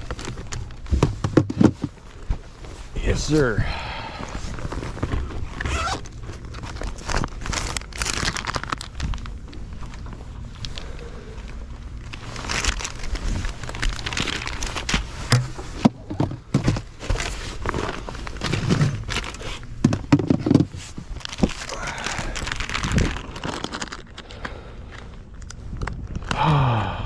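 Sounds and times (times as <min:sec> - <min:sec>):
knocks and scrapes on boat deck: 0:00.9 - 0:02.8, 0:15.0 - 0:21.1.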